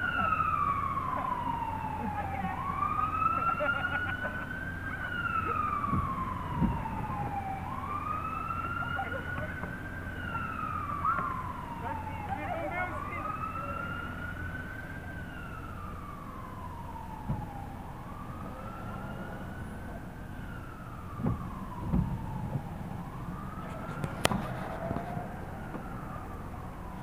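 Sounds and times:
emergency siren wailing: 0.0s - 27.0s
dull knocks: 5.8s - 7.4s, 21.2s - 22.7s.

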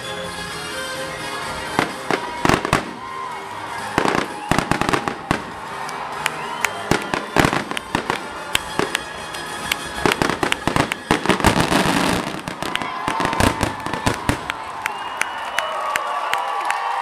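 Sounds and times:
fireworks bangs and crackles: 1.7s - 6.0s, 6.8s - 14.8s.

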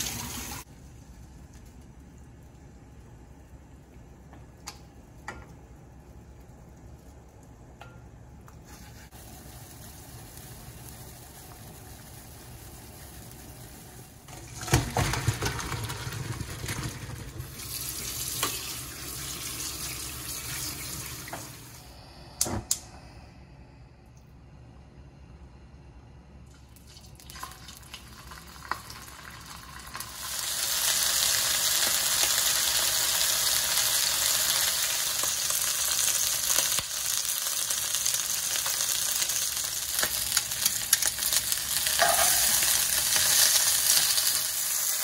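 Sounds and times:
water running from tap: 0.0s - 0.7s, 12.5s - 21.8s.

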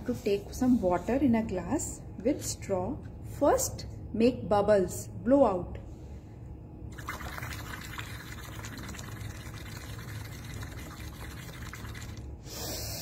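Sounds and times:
air bubbling through straw in water: 6.9s - 12.4s.

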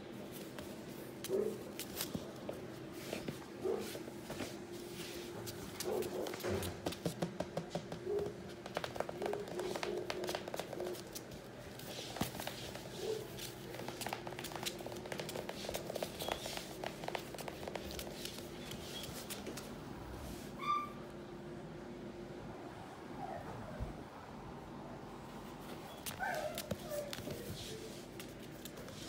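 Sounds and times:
puppy claws clicking on floor: 5.5s - 19.7s, 25.9s - 29.0s.

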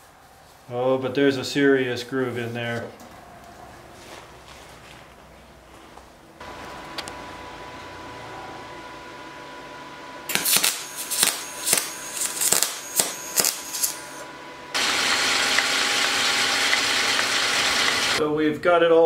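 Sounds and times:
metal lathe cutting hiss: 10.3s - 18.2s
welding arc crackling: 10.3s - 18.2s.

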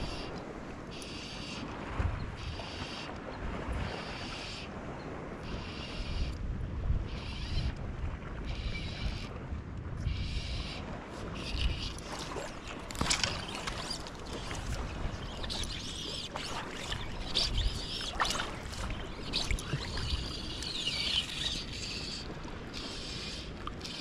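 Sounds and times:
wind buffeting microphone: 1.7s - 2.6s, 4.8s - 23.9s
rippling water: 7.0s - 24.0s
birds whistling: 13.2s - 24.0s.

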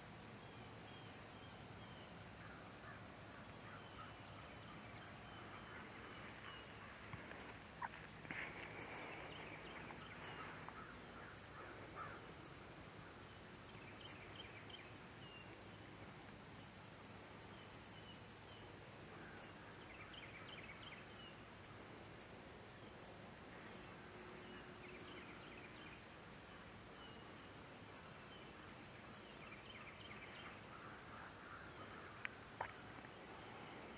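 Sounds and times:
bird calls: 0.4s - 15.8s, 23.5s - 33.9s.

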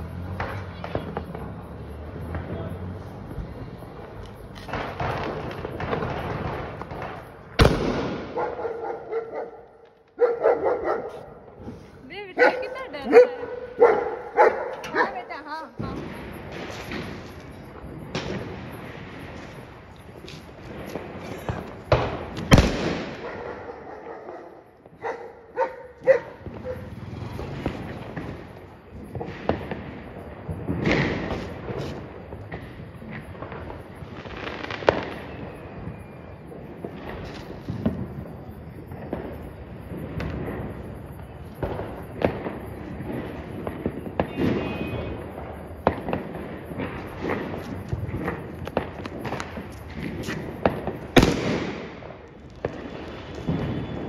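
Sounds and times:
firecracker bang: 0.0s - 9.2s, 9.8s - 25.0s, 26.0s - 54.0s
dog barking: 8.3s - 11.5s, 12.4s - 15.2s, 23.2s - 26.9s.

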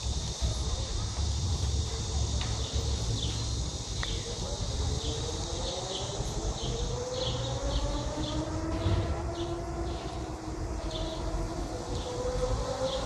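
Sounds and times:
insects chirping: 0.0s - 13.0s
wind rumble on microphone: 0.0s - 13.0s
faint distant rising tone: 4.7s - 13.0s.

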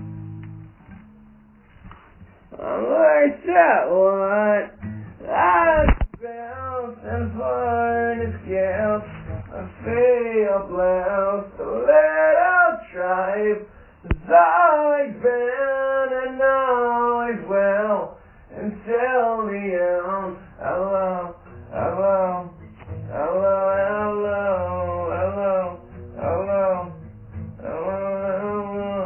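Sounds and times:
man singing: 2.5s - 29.0s
sharp click: 5.8s - 6.3s, 14.1s - 14.3s.

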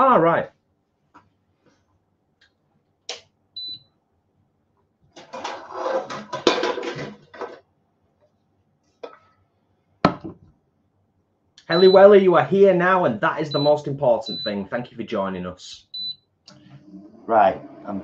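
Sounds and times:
metal pans clattering and scraping: 5.2s - 7.6s.

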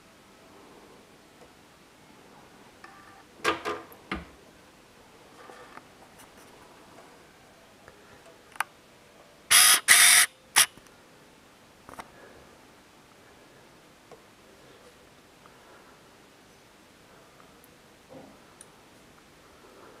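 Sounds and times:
faint disc mechanism sounds: 2.8s - 4.2s.

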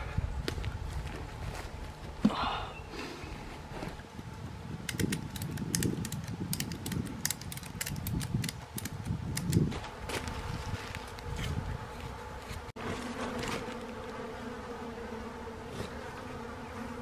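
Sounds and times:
flies buzzing: 2.9s - 17.0s
strap clicking tight: 4.9s - 9.6s.

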